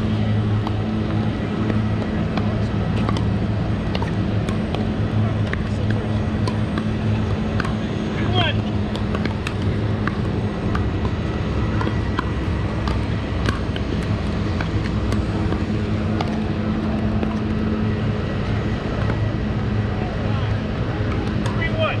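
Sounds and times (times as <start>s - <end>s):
steady low hum: 0.0s - 22.0s
paddles striking plastic balls: 0.6s - 7.9s, 8.6s - 17.4s.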